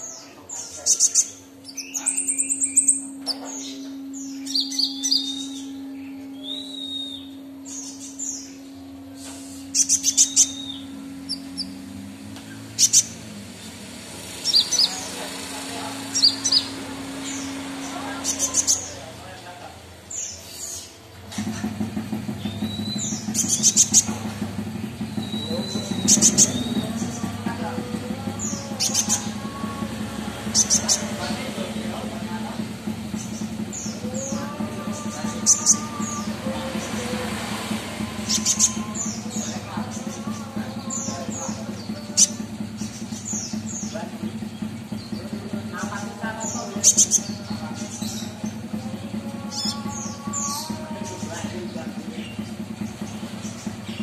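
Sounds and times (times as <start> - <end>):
bird chirping and trilling: 0.0 - 54.0
steady low hum: 0.0 - 54.0
bird whistling and chirping: 1.0 - 8.6, 25.2 - 27.2.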